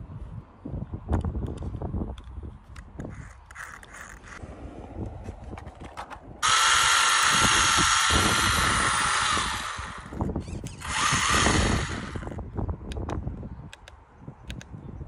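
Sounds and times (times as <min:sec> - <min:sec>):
electric motor high whine: 0:06.4 - 0:12.4.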